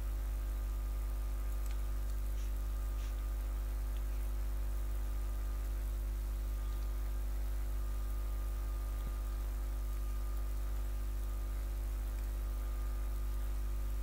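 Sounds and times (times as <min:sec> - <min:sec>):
constant hiss: 0:00.0 - 0:14.0
low electrical mains hum: 0:00.0 - 0:14.0
faint clicks: 0:01.5 - 0:03.3, 0:12.1 - 0:12.4.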